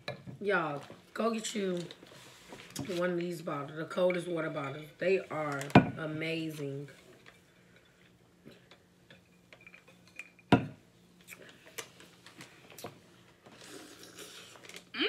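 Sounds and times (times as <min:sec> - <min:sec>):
wet eating noise: 0:12.7 - 0:14.9.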